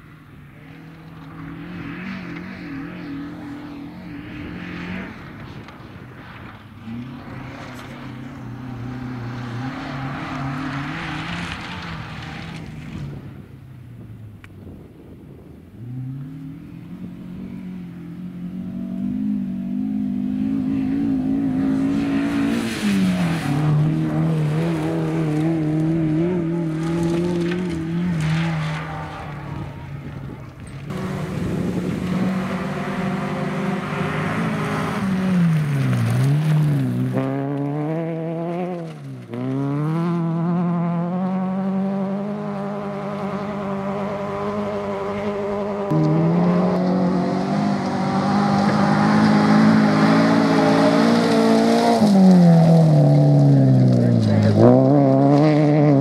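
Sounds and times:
rally car engines at full throttle: 0.0 - 56.0
rally car engine revving hard: 19.0 - 30.3, 30.9 - 56.0.

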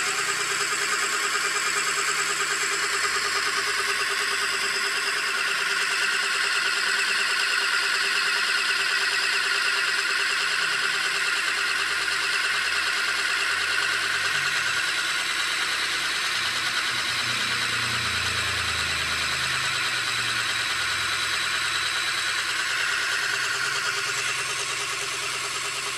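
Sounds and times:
scroll saw motor whirring: 0.0 - 25.9
steady hum: 14.1 - 25.9.

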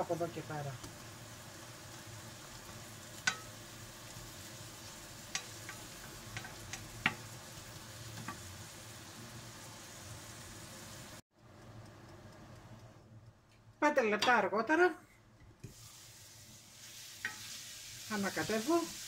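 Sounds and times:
mushrooms sizzling in a frying pan: 0.0 - 11.2, 15.6 - 19.0
spatula clicking against pan: 3.2 - 3.6, 5.3 - 7.3.

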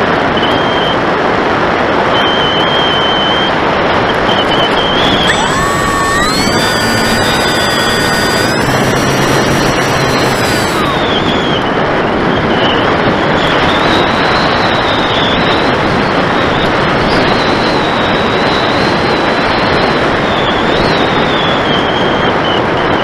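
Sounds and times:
electric motor whine: 5.0 - 11.6.

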